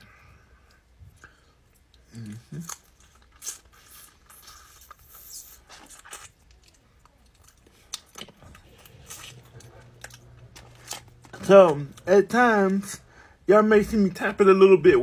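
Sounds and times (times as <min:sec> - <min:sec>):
person eating wet chewing: 0:00.0 - 0:12.1.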